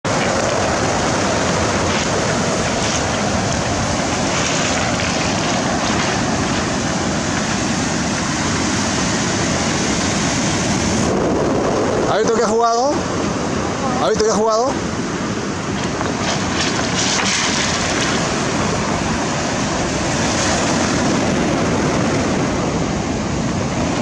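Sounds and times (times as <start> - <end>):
sea surf breaking: 0.0 - 24.0
wind rumbling on microphone: 0.0 - 24.0.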